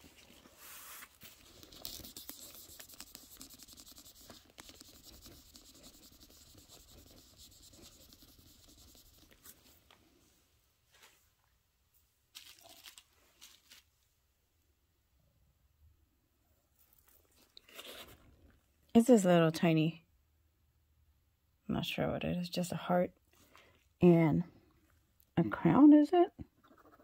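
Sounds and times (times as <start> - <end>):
wipe rubbing on stone: 0.5 - 9.6.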